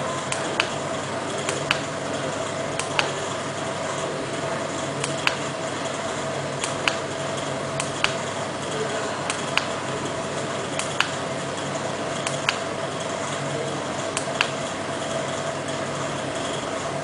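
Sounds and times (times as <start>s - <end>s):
sharp clicks: 0.3s - 0.8s, 1.4s - 1.9s, 2.8s - 3.2s, 5.0s - 5.5s, 6.6s - 7.1s, 7.8s - 8.2s, 9.3s - 9.8s, 10.8s - 11.2s, 12.2s - 12.7s, 14.2s - 14.6s.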